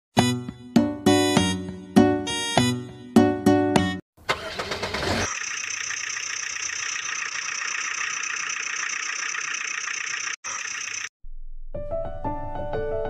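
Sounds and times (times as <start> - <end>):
engine starting and running: 4.2 - 11.1.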